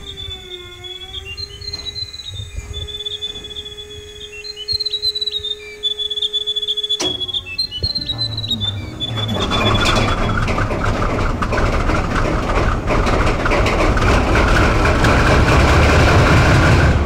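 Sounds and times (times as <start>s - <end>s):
high warbling whistle-like tone: 0.0s - 11.0s
diesel locomotive idling hum: 0.0s - 17.0s
sharp click: 6.9s - 8.9s.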